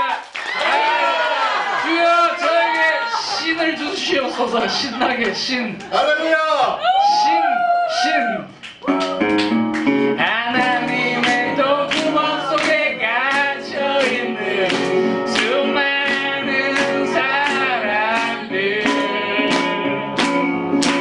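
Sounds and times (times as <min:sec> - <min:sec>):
acoustic guitars strumming: 0:08.9 - 0:21.0
man singing: 0:10.2 - 0:20.2.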